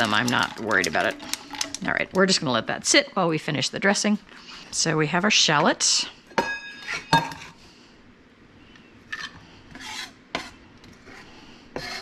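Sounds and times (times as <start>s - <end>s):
knife scraping cutting board: 9.2s - 12.0s.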